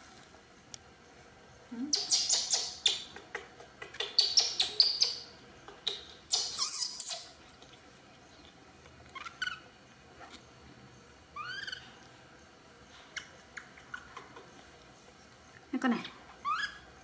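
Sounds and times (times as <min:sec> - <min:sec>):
baby monkey squeaking and chirping: 0:01.9 - 0:03.2, 0:03.9 - 0:07.4, 0:09.2 - 0:09.6, 0:11.4 - 0:11.9, 0:16.4 - 0:16.9.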